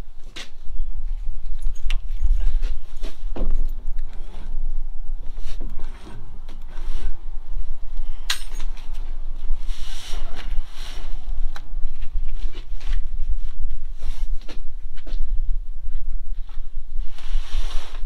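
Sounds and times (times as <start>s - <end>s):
steady low rumble: 0.0s - 18.0s
tarp rubbing rustle: 17.1s - 18.0s.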